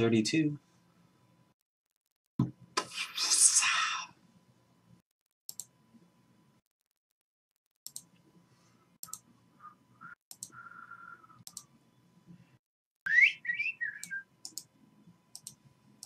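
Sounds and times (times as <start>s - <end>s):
computer mouse clicking: 5.5s - 5.7s, 7.8s - 8.1s, 9.0s - 9.2s, 10.3s - 10.6s, 11.4s - 11.7s, 14.0s - 14.7s, 15.3s - 15.6s.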